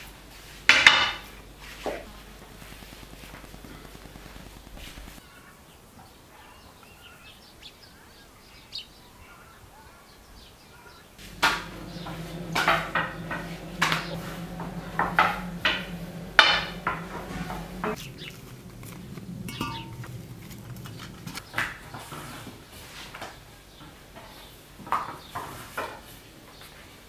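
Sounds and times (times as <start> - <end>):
knocks and clatter on a table: 11.2 - 18.0
low steady hum: 11.2 - 22.7.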